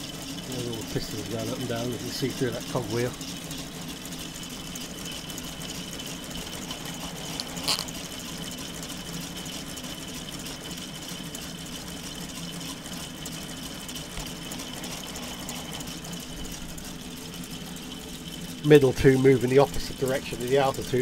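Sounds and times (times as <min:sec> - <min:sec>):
small electric motor whirring: 0:03.0 - 0:08.6, 0:14.1 - 0:18.0.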